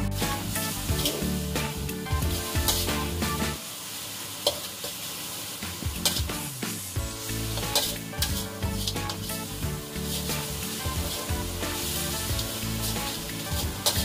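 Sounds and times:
spice paste sizzling in a wok: 0:00.0 - 0:14.0
metal spatula scraping and clanking: 0:00.2 - 0:03.1, 0:07.4 - 0:14.0.

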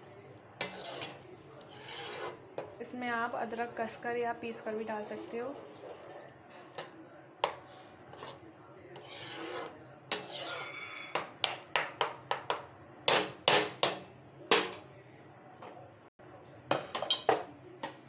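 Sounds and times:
spatula scraping a pan: 0:00.6 - 0:02.8, 0:04.6 - 0:06.9, 0:07.6 - 0:11.3.

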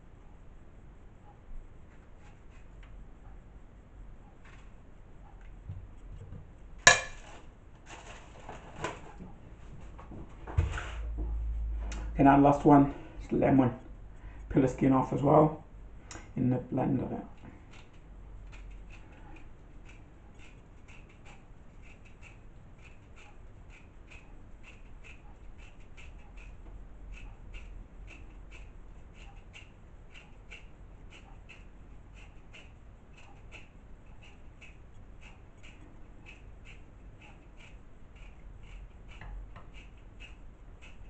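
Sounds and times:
knife peeling lemon: 0:02.0 - 0:02.8, 0:17.0 - 0:41.0.

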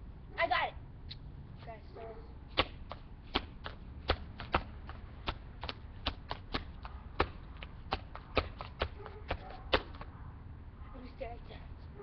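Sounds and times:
body slaps: 0:02.6 - 0:10.1
foot stomps on concrete: 0:02.6 - 0:10.1
hand claps: 0:02.6 - 0:10.1.

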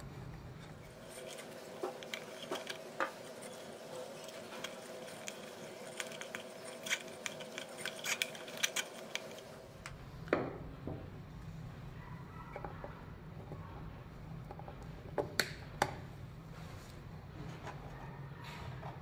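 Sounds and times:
faint steady hum: 0:00.0 - 0:19.0
cable tie clicking and rustling: 0:00.6 - 0:10.0.

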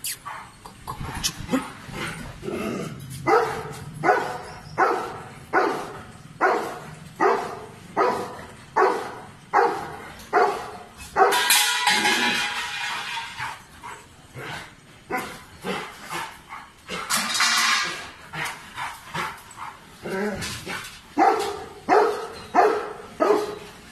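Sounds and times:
dog barking: 0:03.3 - 0:11.6, 0:21.2 - 0:23.6.

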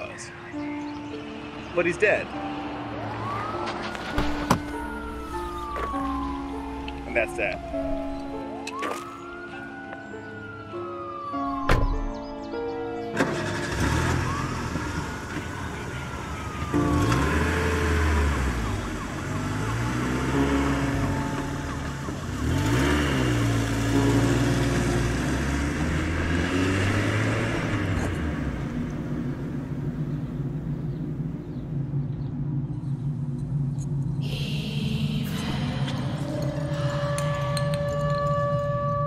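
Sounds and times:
car engine accelerating: 0:13.1 - 0:38.8.

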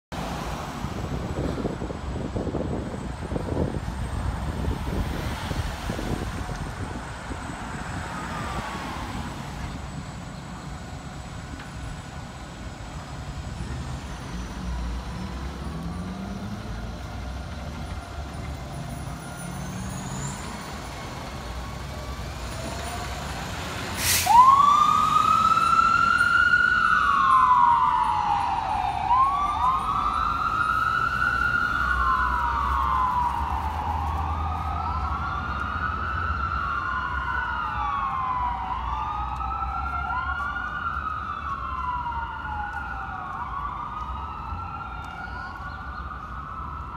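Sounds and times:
siren wailing: 0:24.2 - 0:46.9.

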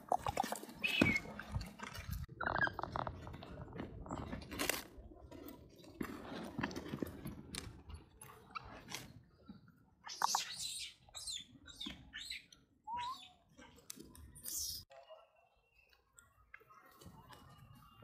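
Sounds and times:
baby monkey squeak: 0:10.1 - 0:13.4.

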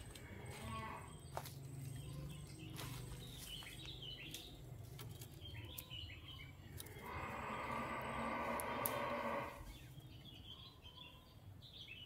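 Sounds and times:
canary chirping: 0:01.9 - 0:08.8.

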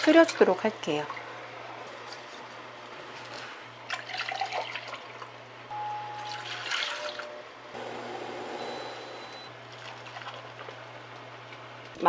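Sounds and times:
low steady hum: 0:00.0 - 0:12.0
liquid pouring into a saucepan: 0:03.9 - 0:05.2.

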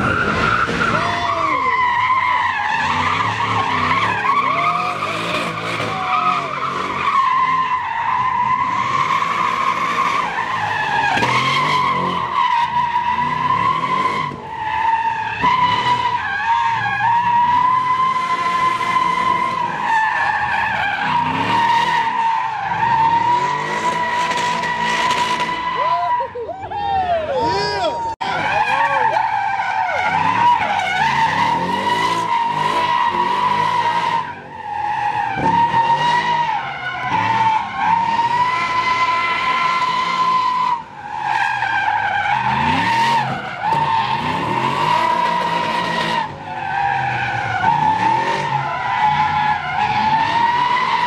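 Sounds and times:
car engine revving: 0:00.0 - 0:25.8, 0:28.2 - 0:51.0
tyres squealing: 0:00.0 - 0:51.0.

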